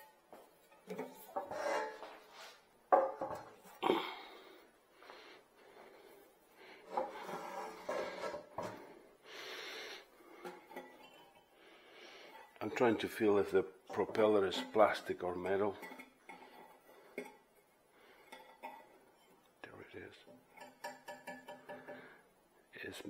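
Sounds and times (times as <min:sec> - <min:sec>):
rubbing and scraping: 0:00.0 - 0:02.7, 0:06.8 - 0:09.0.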